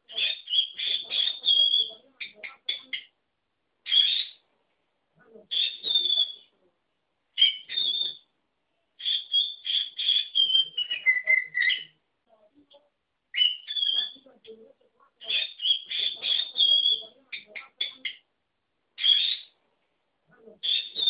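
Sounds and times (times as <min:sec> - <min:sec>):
lovebird mimicking words: 0:00.0 - 0:03.2, 0:03.8 - 0:04.4, 0:05.2 - 0:06.7, 0:07.4 - 0:08.2, 0:09.0 - 0:18.3, 0:19.0 - 0:19.5, 0:20.3 - 0:21.0.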